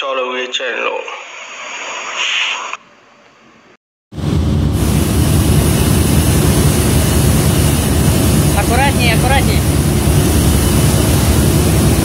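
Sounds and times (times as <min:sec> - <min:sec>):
ship engine and deck machinery: 0:04.2 - 0:12.0.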